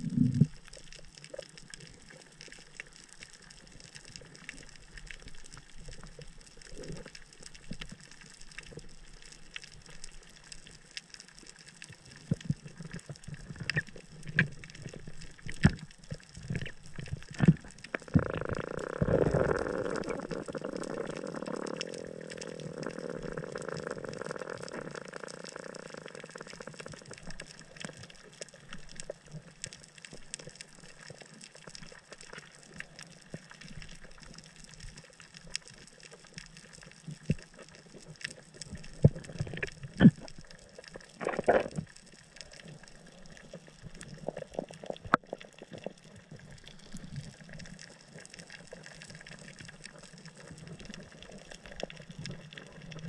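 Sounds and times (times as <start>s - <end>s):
steady underwater hiss: 0.0s - 53.0s
underwater clicks and knocks: 12.2s - 22.0s, 41.2s - 42.0s.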